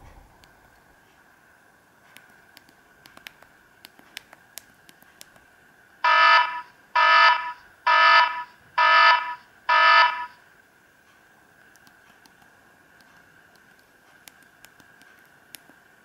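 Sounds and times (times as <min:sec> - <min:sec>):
electronic alarm beeps: 0:06.1 - 0:10.4.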